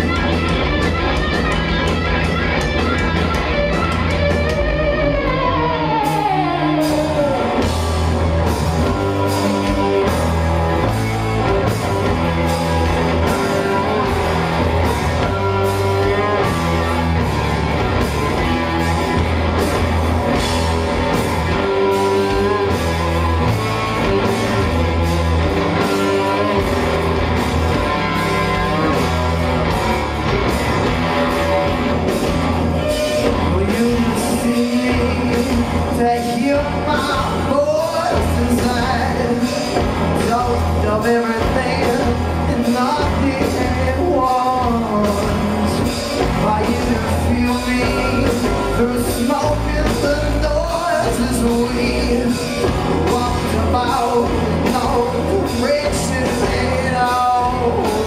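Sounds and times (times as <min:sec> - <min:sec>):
live rock band playing: 0:00.0 - 0:58.0.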